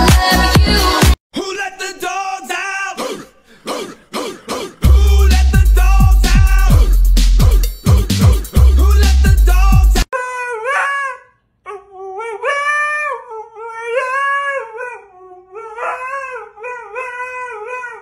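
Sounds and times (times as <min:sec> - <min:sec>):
electronic music: 0:00.0 - 0:01.2, 0:04.8 - 0:10.1
husky howling: 0:10.5 - 0:18.0.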